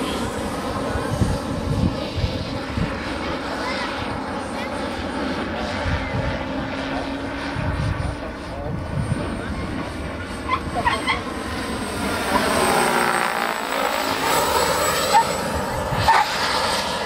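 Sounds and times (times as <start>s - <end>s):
model helicopter flying past: 0.0s - 17.0s.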